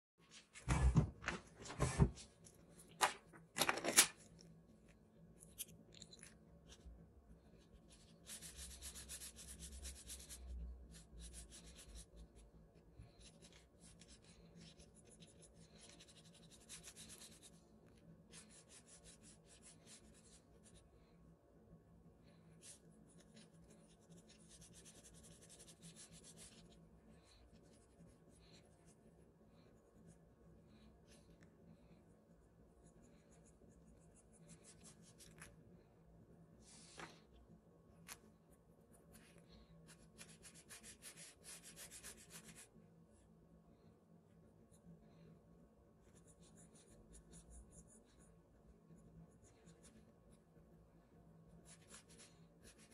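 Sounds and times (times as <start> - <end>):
charcoal pencil scratching paper: 7.6 - 12.4, 13.0 - 17.6, 18.3 - 20.8, 22.6 - 26.8, 39.1 - 42.7, 46.0 - 50.5, 51.5 - 52.9.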